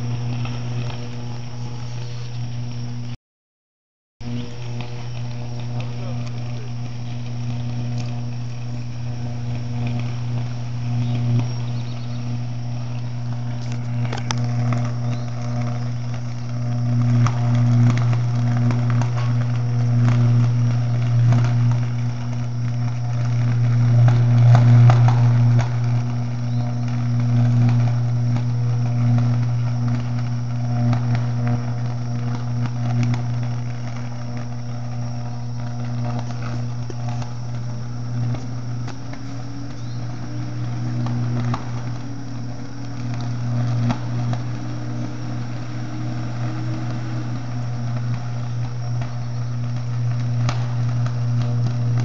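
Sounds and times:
electrical arc buzzing and crackling: 0.0s - 3.2s, 4.2s - 52.0s.

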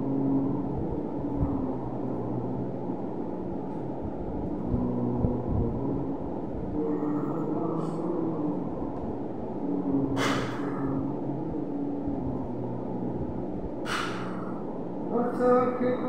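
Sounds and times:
low background rumble: 0.0s - 16.0s
sharp breaths through nose: 10.2s - 10.7s, 13.8s - 14.6s.

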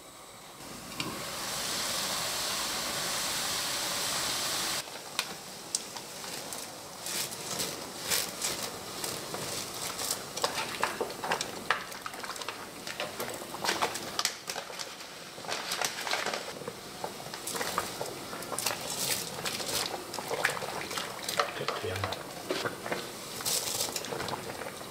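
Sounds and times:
hot water hissing: 0.0s - 24.9s
noodles clicking and crackling: 5.1s - 24.9s.

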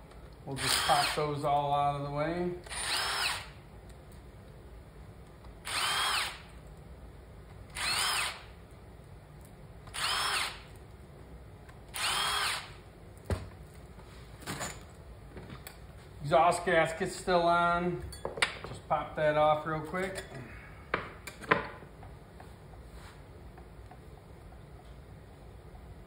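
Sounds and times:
cordless drill motor whine: 0.6s - 1.2s, 2.7s - 3.6s, 5.6s - 6.5s, 7.7s - 8.5s, 9.9s - 10.6s, 11.9s - 12.8s.

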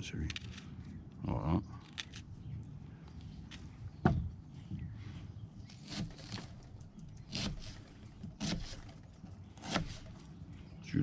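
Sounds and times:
knife cutting on plastic board: 7.2s - 9.0s, 9.6s - 10.2s.

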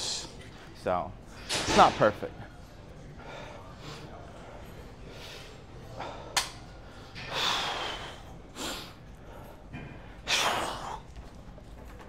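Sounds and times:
man breathing heavily: 3.1s - 11.1s.

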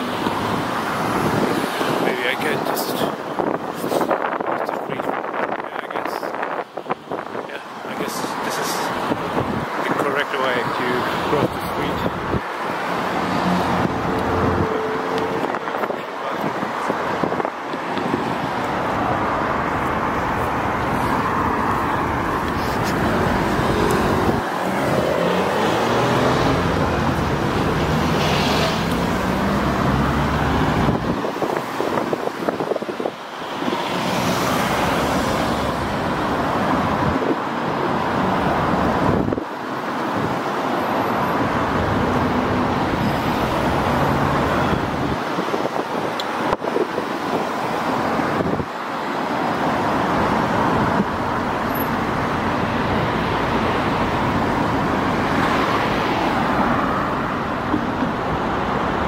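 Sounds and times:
road traffic passing: 0.0s - 59.0s
engine note rising and falling: 23.0s - 31.0s.

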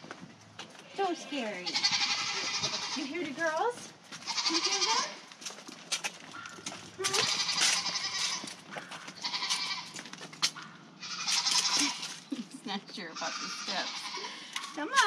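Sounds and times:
young goat bleating: 1.2s - 3.3s, 4.2s - 5.3s, 7.0s - 8.6s, 9.2s - 10.0s, 11.0s - 12.3s, 13.1s - 14.5s.

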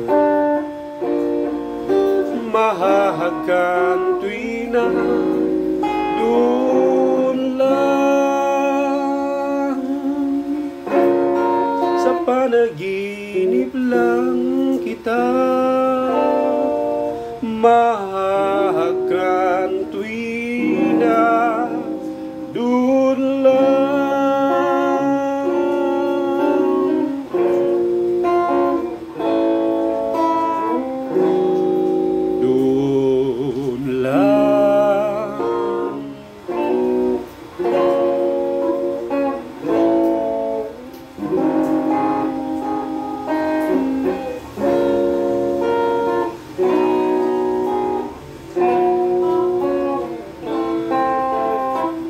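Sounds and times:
electric guitar ballad: 0.0s - 52.0s
man singing: 1.9s - 29.0s, 30.1s - 39.0s.

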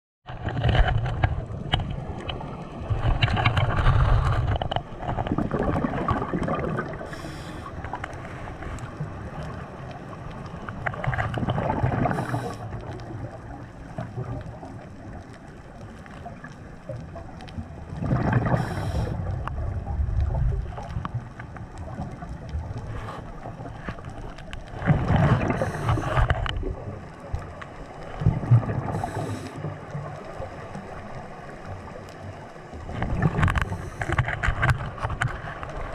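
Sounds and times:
exhaled bubbles gurgling: 0.3s - 35.9s
watery hiss: 6.9s - 8.6s, 11.9s - 12.9s, 18.3s - 19.4s, 25.2s - 26.3s, 28.8s - 29.8s, 33.7s - 34.2s.

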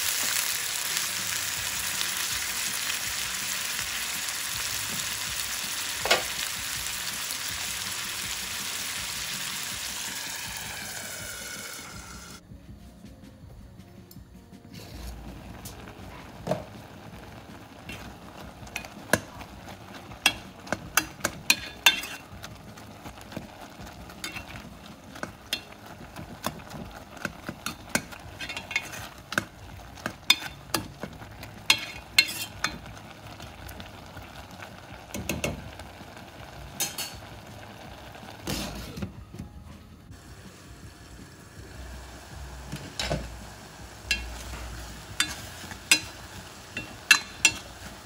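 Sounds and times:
metal ladle scraping pot: 21.5s - 22.3s, 28.4s - 29.3s, 31.7s - 32.8s.

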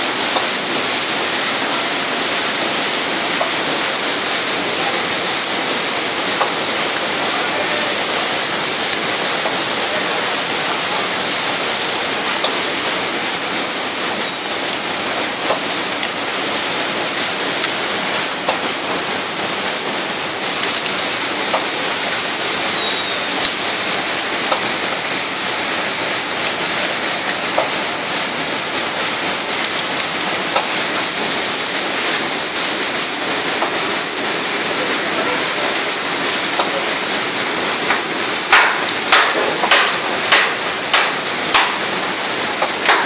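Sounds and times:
machine running with rushing noise: 0.0s - 43.0s
sharp clacks: 38.5s - 41.8s, 42.6s - 43.0s.

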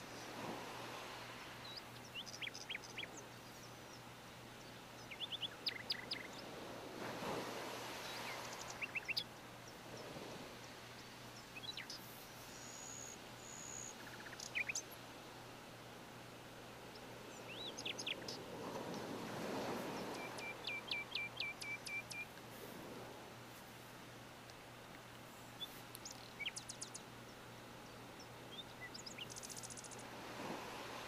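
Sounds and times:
birds chirping: 1.4s - 6.5s, 7.9s - 10.2s, 10.9s - 14.9s, 16.9s - 22.3s.

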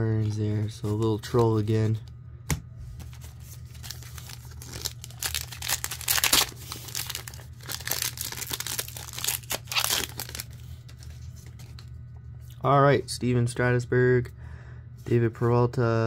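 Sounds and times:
wrapper tearing and crinkling: 3.1s - 11.0s.

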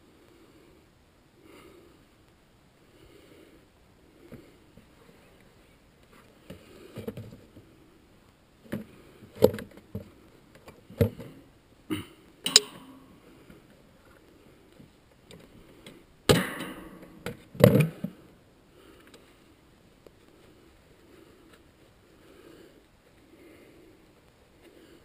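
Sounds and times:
rustle and clatter: 3.6s - 11.5s.

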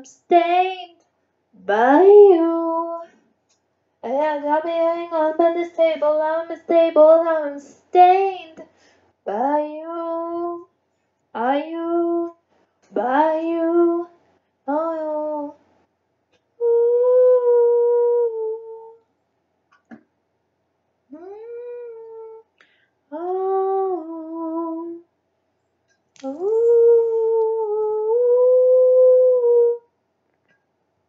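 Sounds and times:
woman singing wordless notes: 0.0s - 1.0s, 1.6s - 3.2s, 4.0s - 8.6s, 9.3s - 10.7s, 11.4s - 15.6s, 16.6s - 19.0s, 23.1s - 25.1s, 26.2s - 29.8s.

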